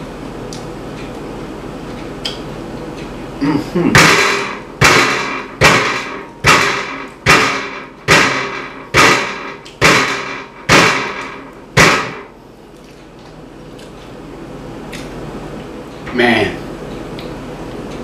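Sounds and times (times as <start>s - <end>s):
fist pounding on glass table: 4.0s - 12.3s.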